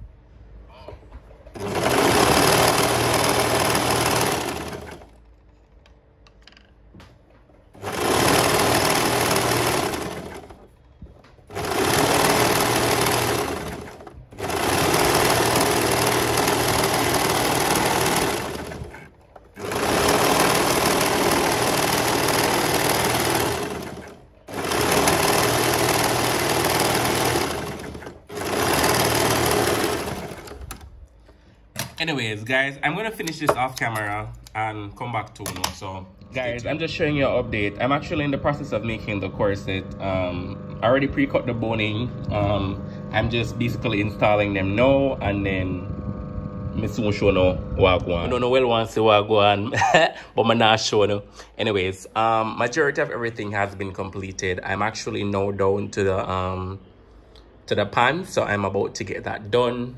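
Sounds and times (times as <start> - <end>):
overlocker stitching: 1.4 - 5.8, 7.7 - 10.8, 11.4 - 31.0.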